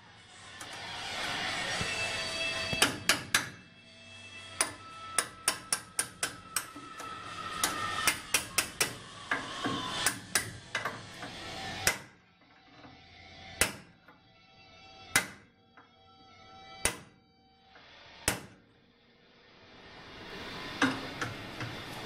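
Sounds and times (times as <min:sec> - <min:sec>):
hammer tapping steel punch: 0:02.7 - 0:03.6, 0:04.6 - 0:06.8, 0:07.6 - 0:10.9, 0:11.8 - 0:12.1, 0:13.6 - 0:14.0, 0:15.1 - 0:15.4, 0:16.8 - 0:17.1, 0:18.2 - 0:18.6.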